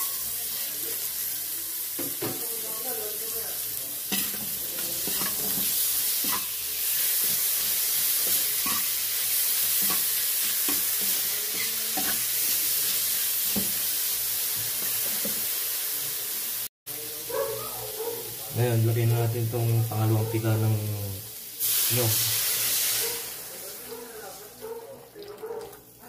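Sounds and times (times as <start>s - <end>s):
food sizzling in hot oil: 0.0s - 24.6s
spatula scraping a wok: 4.0s - 15.5s.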